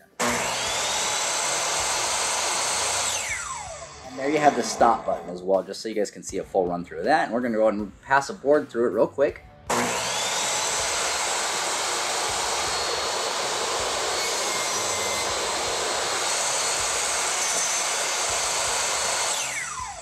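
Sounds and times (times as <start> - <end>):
table saw whining: 0.0 - 5.6, 9.7 - 20.0
table saw winding down: 0.1 - 5.6, 9.7 - 20.0.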